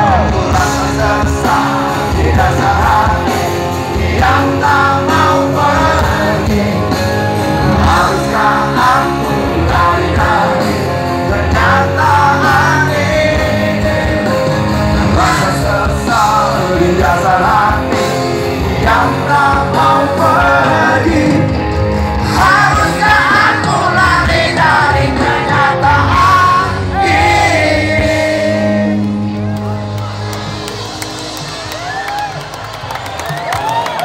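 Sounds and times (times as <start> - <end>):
person singing: 0.0 - 21.6
live rock band playing: 0.0 - 34.0.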